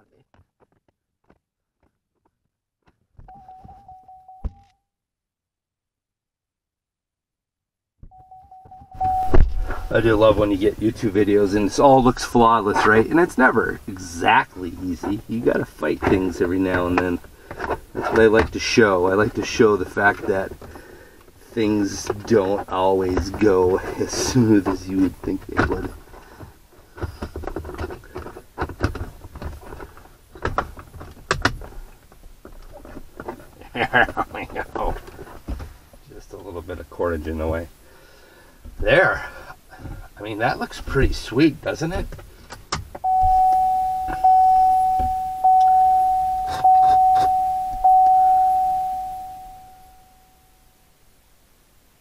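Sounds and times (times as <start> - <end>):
dashboard warning chime: 3.3 - 4.7, 8.1 - 10.6, 43.0 - 50.6
plastic clicks and scraping: 22.0 - 33.6.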